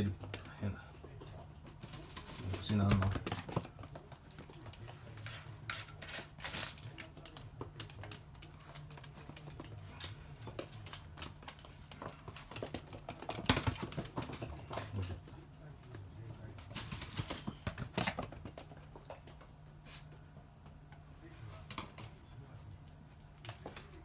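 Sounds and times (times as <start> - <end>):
dog claws clicking on hard floor: 0.0 - 15.4, 16.3 - 20.8
faint low hum: 0.0 - 24.0.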